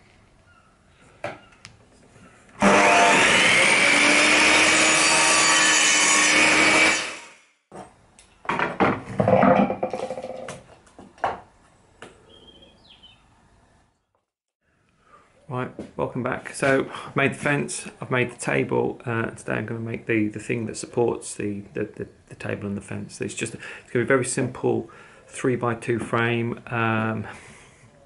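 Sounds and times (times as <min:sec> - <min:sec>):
mitre saw cutting timber: 0:02.6 - 0:07.4
sharp knocks and clatter: 0:07.7 - 0:11.5.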